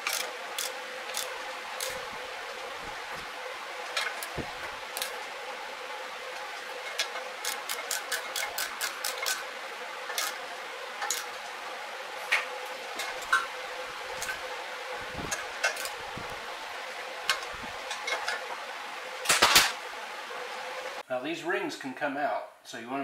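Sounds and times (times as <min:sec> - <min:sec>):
ratchet wrench clicking: 0:00.0 - 0:02.0, 0:07.0 - 0:09.4
steady hum: 0:00.0 - 0:21.0.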